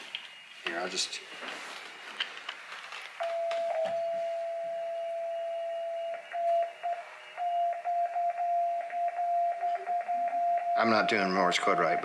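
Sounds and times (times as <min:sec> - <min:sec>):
morse code beeps: 0:03.2 - 0:12.0.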